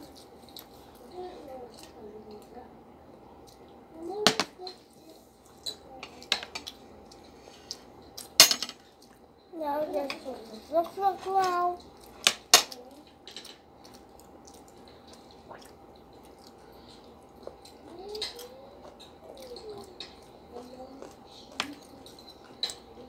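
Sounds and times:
cutlery clinking on plates: 0:08.3 - 0:08.9
child vocal sounds: 0:17.8 - 0:22.1.

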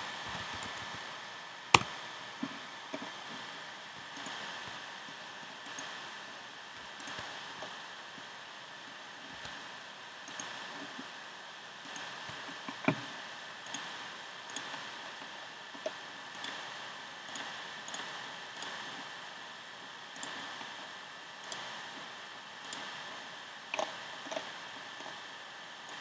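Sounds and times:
faint high hum: 0:00.0 - 0:26.0
steady hiss: 0:00.0 - 0:26.0
computer clicks: 0:04.2 - 0:04.5, 0:05.6 - 0:05.9, 0:07.0 - 0:07.7, 0:10.3 - 0:10.6, 0:22.6 - 0:22.9.

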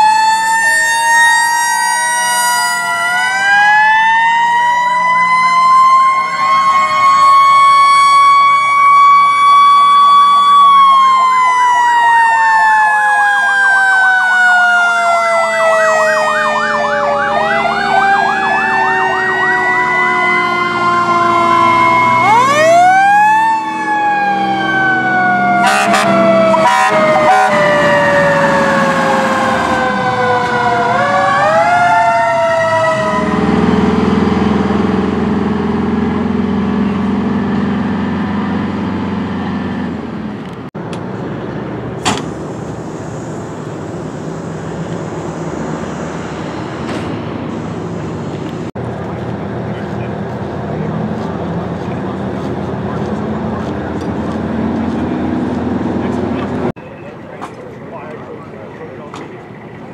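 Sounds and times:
fast siren warble: 0:00.0 - 0:34.5
sirens wailing: 0:00.0 - 0:40.6, 0:41.2 - 0:59.9
truck engines running: 0:00.0 - 0:59.9
short sharp horn blasts: 0:25.6 - 0:27.6.

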